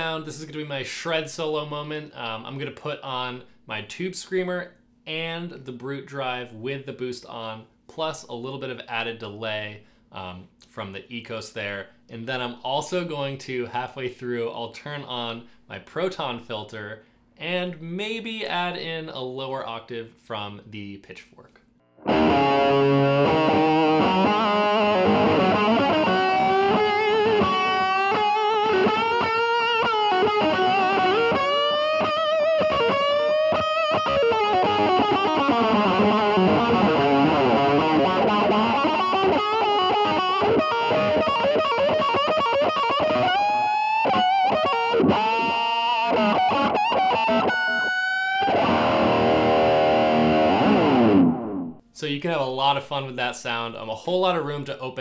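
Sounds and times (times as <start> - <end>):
overdriven electric guitar solo: 22.0 - 51.8.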